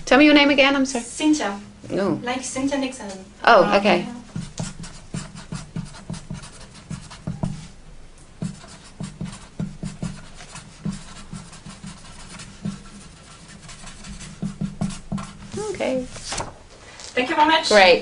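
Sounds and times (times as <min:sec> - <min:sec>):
marker pen scratching: 0:04.3 - 0:07.7, 0:08.4 - 0:16.2.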